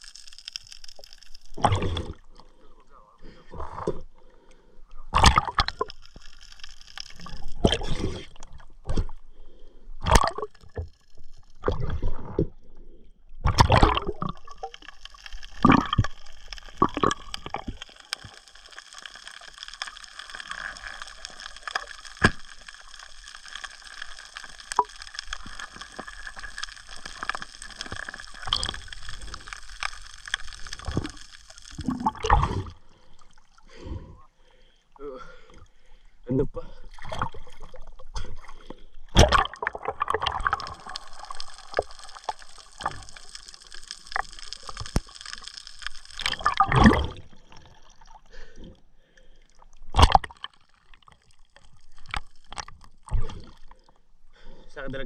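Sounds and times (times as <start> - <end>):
underwater steady hiss: 0.0 - 49.9, 50.5 - 55.0
underwater gurgling and sloshing: 0.0 - 55.0.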